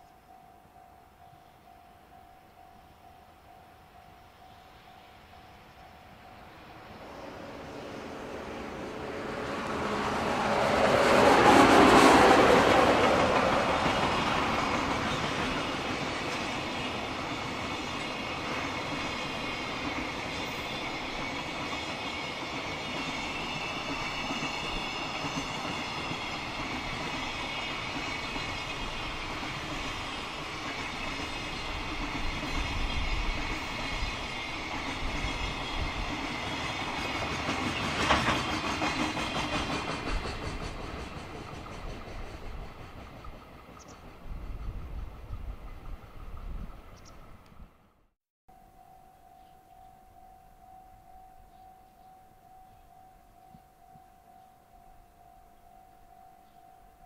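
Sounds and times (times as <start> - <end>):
electric locomotive: 0.0 - 57.0
train wheels clattering on rails: 7.1 - 47.2.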